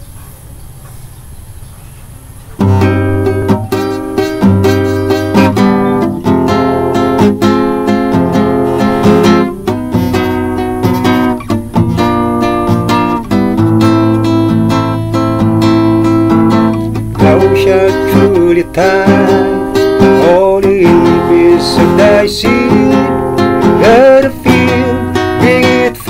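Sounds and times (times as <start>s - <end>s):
faint hum: 0.0s - 26.0s
acoustic guitar strumming chords: 2.5s - 26.0s.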